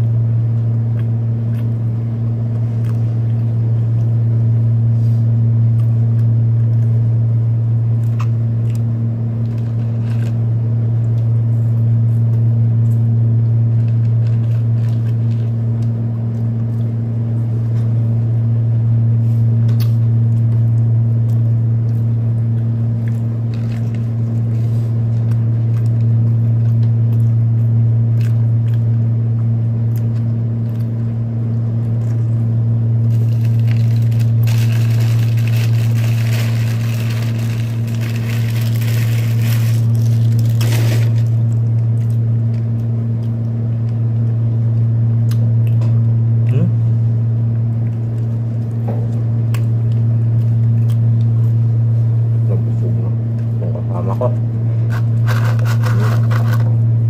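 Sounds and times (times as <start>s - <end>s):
low electrical hum: 0.0s - 57.0s
person chewing: 0.5s - 4.2s, 7.9s - 17.0s, 19.7s - 44.4s, 49.5s - 51.6s.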